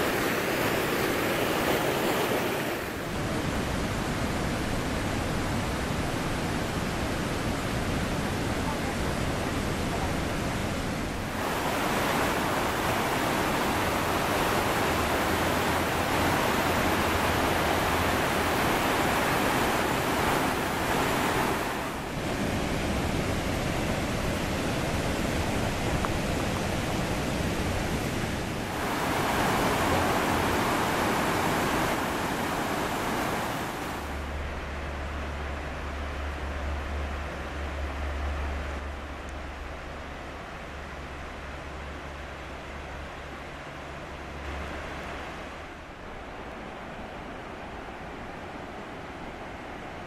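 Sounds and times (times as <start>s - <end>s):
waterfalls rushing: 7.6s - 34.2s.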